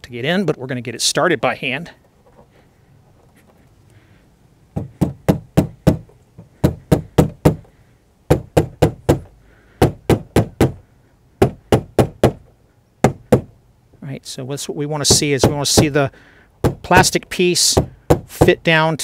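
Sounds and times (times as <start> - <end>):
rubber mallet knocking: 4.8 - 7.7, 8.3 - 10.8, 11.4 - 13.5, 15.1 - 16.0, 16.6 - 17.1, 17.7 - 18.6.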